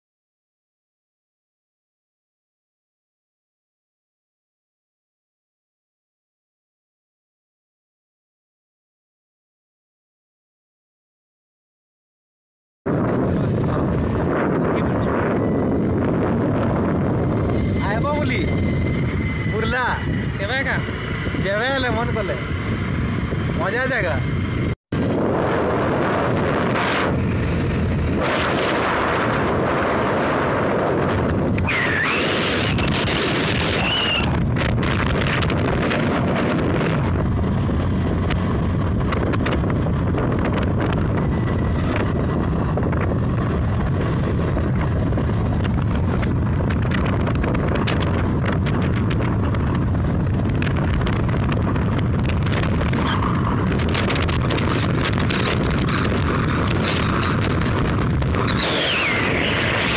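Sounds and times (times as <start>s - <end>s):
wind buffeting microphone: 12.9s - 59.9s
scooter engine running: 36.2s - 46.9s.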